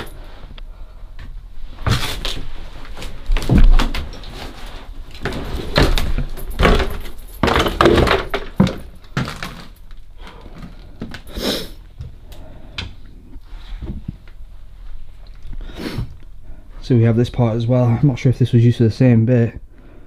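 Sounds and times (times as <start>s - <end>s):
rustling: 1.6s - 11.3s
irregular knocks and thuds: 3.3s - 4.2s, 5.2s - 9.7s.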